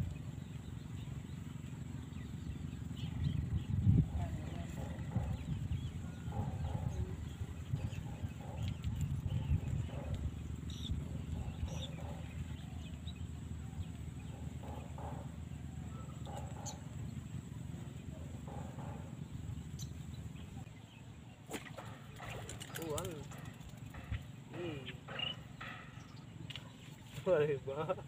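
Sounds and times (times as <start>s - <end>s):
bird chirps: 0.0s - 27.2s
wind buffeting microphone: 2.2s - 12.9s.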